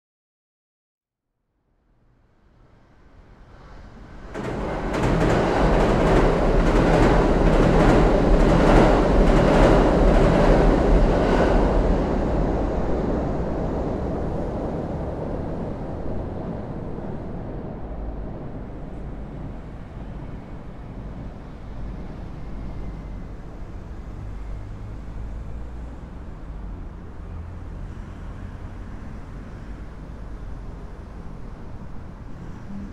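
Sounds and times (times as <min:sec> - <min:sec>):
train crossing steel bridge: 0:02.5 - 0:32.9
wheels clattering over track: 0:04.3 - 0:11.0.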